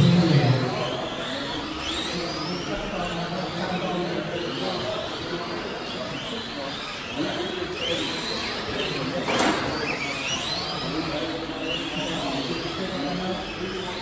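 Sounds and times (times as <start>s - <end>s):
rc truck motors whining: 0.0s - 14.0s.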